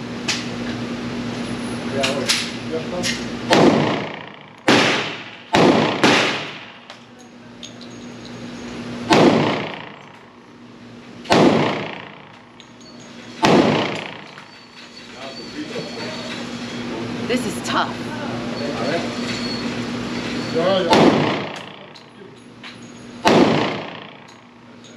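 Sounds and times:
pistol shots echoing indoors: 3.5 - 7.0, 9.1 - 10.1, 11.3 - 12.4, 13.4 - 14.4, 20.9 - 21.9, 23.2 - 24.3.

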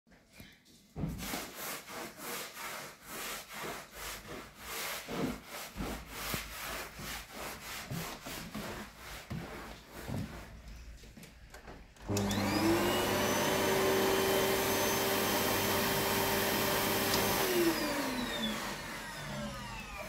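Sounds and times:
vacuum nozzle rubbing on floor: 1.0 - 10.7, 12.2 - 20.0
vacuum cleaner humming: 12.0 - 20.0.

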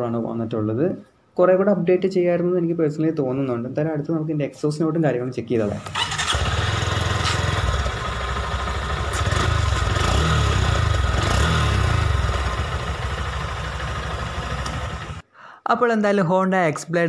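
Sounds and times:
motorcycle engine idling: 6.0 - 15.2.

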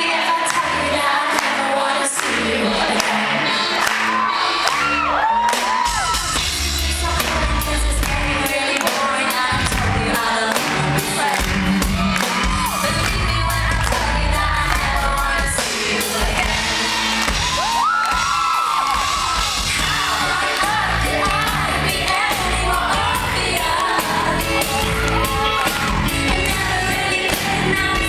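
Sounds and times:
woman singing: 0.0 - 4.0, 5.8 - 18.2, 18.8 - 28.0
live pop band playing: 0.0 - 28.0
crowd whooping: 3.8 - 6.5, 11.7 - 13.6, 16.7 - 21.9, 24.2 - 26.3.

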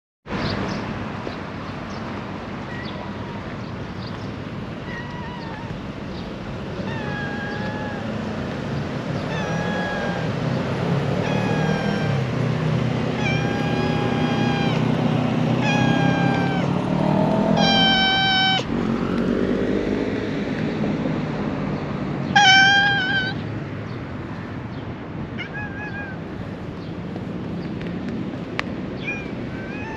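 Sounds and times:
cat meowing: 2.6 - 3.7, 4.7 - 5.8, 6.7 - 8.2, 9.2 - 10.5, 11.2 - 12.4, 13.1 - 16.8, 17.5 - 18.7, 22.3 - 23.4, 25.3 - 26.4, 29.0 - 29.9.

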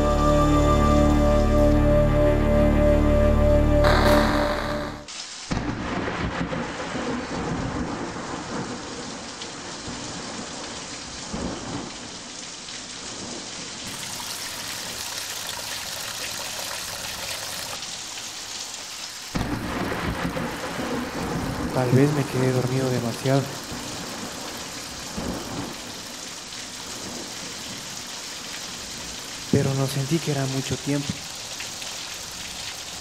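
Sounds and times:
rushing water: 3.5 - 33.0
low rumble: 3.8 - 6.5.

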